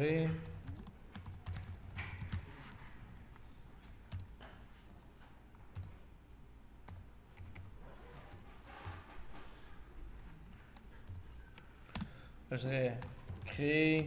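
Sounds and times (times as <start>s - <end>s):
computer keyboard typing: 0.3s - 2.6s, 3.8s - 4.4s, 5.7s - 6.0s, 6.8s - 8.6s, 10.7s - 12.2s, 12.9s - 14.0s.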